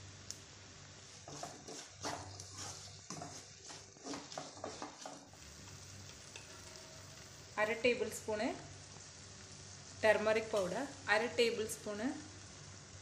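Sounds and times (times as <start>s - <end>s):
spatula scraping in pan: 1.0s - 7.4s.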